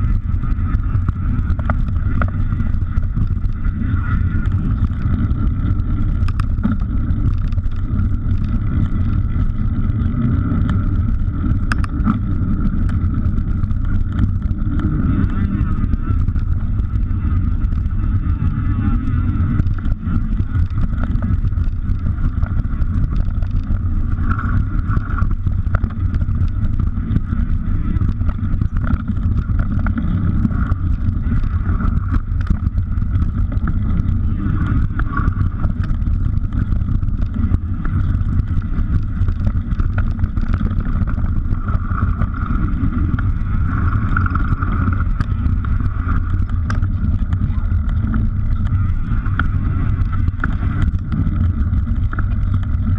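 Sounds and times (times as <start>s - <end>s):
bike rattling over bumps: 0.0s - 52.9s
wind rumble on microphone: 0.0s - 52.9s.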